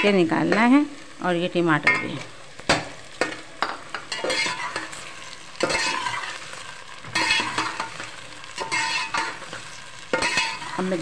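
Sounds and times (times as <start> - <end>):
onions sizzling in hot oil: 0.0 - 11.0
metal spoon scraping a pot: 3.2 - 11.0.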